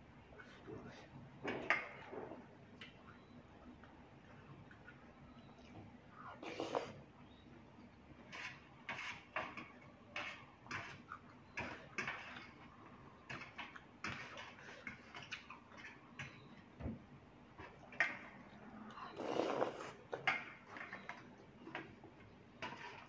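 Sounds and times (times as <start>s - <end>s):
slurping noodles: 6.4s - 7.0s, 19.1s - 20.2s.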